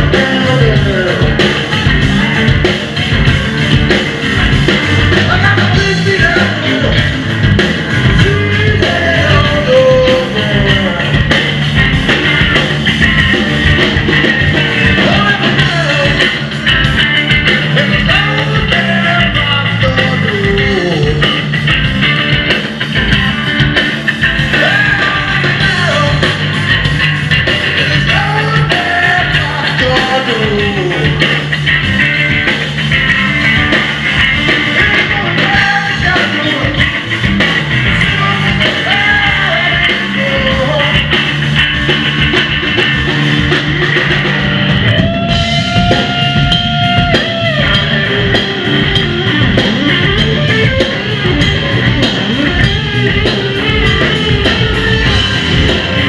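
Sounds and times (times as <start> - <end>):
man singing: 0.0 - 1.7, 5.0 - 7.2, 8.0 - 11.5, 14.8 - 16.5, 17.7 - 21.5, 24.5 - 26.4, 27.7 - 31.4, 34.5 - 37.0, 37.9 - 41.2
bass guitar: 0.0 - 56.0
drum kit: 0.0 - 56.0
electric guitar: 0.0 - 56.0.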